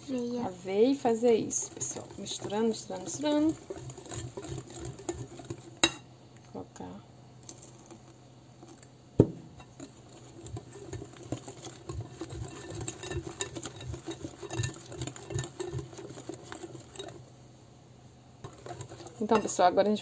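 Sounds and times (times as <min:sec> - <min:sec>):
batter sloshing: 0:00.0 - 0:06.0, 0:09.6 - 0:17.6, 0:18.4 - 0:20.0
whisk clicking against glass bowl: 0:01.1 - 0:06.0, 0:09.6 - 0:17.2, 0:18.4 - 0:19.7.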